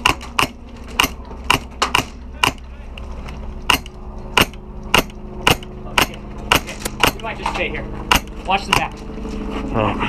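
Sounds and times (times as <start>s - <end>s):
airsoft rifle shots: 3.7s - 7.3s.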